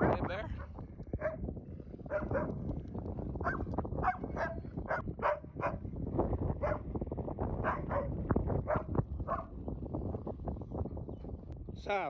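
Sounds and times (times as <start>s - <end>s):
wind on microphone: 0.0s - 12.0s
dog barking and yipping: 2.1s - 2.6s, 3.4s - 5.8s, 7.6s - 8.1s.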